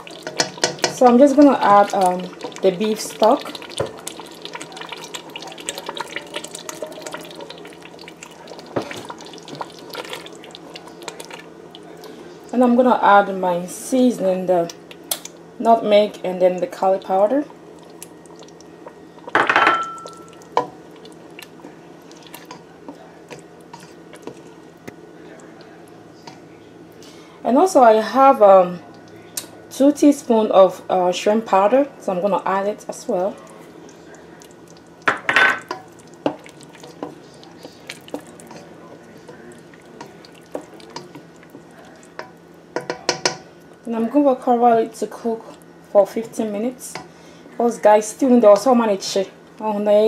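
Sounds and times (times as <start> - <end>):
spoon stirring thick stew: 0.0 - 12.5, 16.8 - 26.5, 33.1 - 43.9
glass bowl clattering against pot: 19.3 - 20.3.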